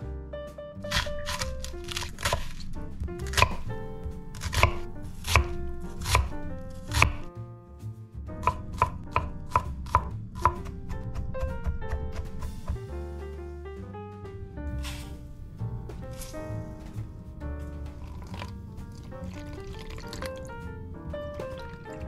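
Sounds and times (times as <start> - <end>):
knife chopping on wooden board: 0.9 - 7.3, 8.4 - 12.8, 14.8 - 15.2.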